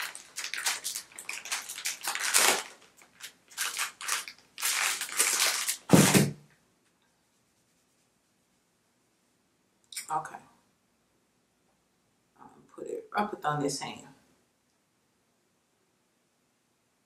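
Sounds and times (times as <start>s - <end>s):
wipe packet crinkling and tearing: 0.0s - 6.3s
heavy thump: 5.9s - 6.4s.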